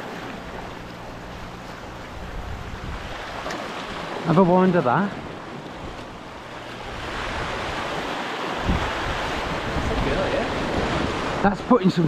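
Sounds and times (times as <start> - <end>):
wind buffeting microphone: 0.5 - 4.5, 5.2 - 11.9
surf breaking on rocks: 2.8 - 12.0.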